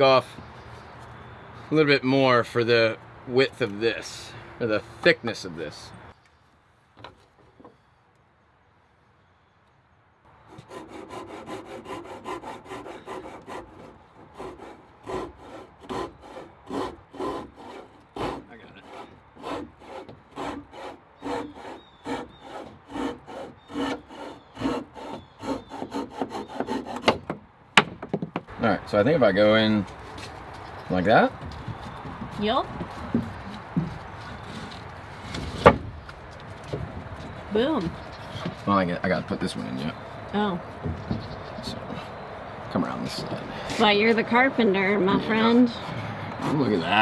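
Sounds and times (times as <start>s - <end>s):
hand saw cutting wood: 10.5s - 27.3s, 45.1s - 47.0s.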